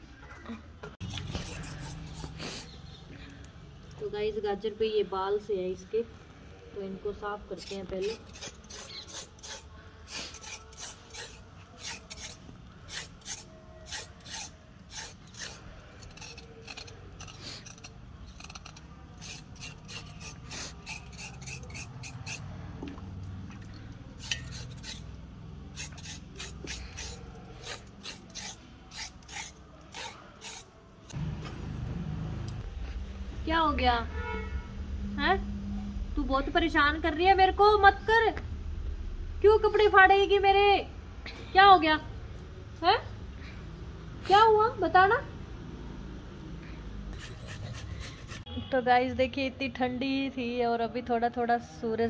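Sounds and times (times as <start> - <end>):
carrot rasping on metal blade: 1.0 - 2.7, 7.5 - 22.5, 24.2 - 30.8, 47.1 - 48.5.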